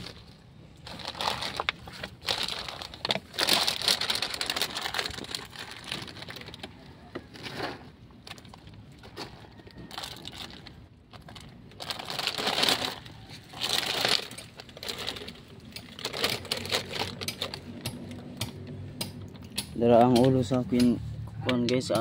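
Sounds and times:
plastic sheeting rustling: 0.0 - 6.6, 9.9 - 17.6.

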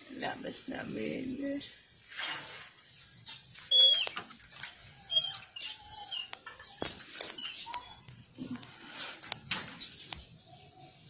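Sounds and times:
metal gate hinges squeaking: 2.1 - 8.4.

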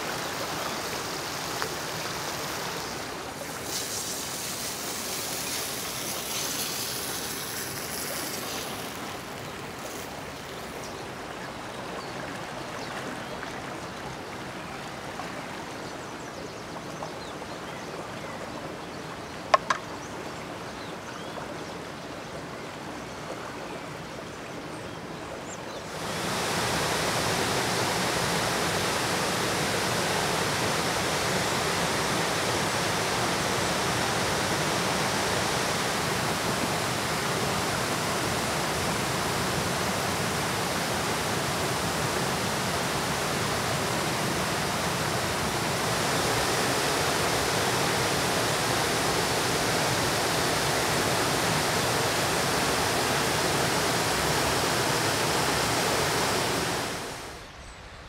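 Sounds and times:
waterfall rushing: 0.0 - 12.1, 25.9 - 57.4.

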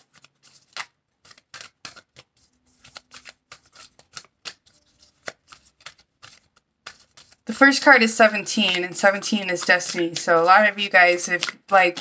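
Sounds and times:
cards being shuffled: 0.0 - 12.0.

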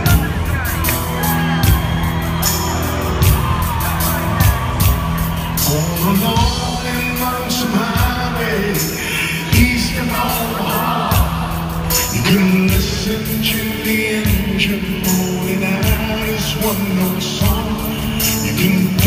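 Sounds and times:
live band with grand piano: 0.0 - 19.0
man singing: 5.6 - 19.0.

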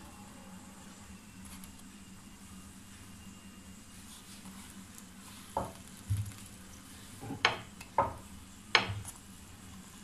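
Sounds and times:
wooden spatula knocking on pan: 7.2 - 9.0.

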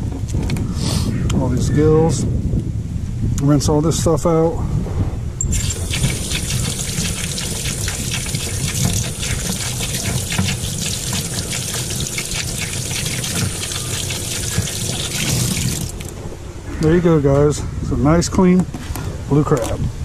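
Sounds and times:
hose water splashing into sink: 5.5 - 16.2.

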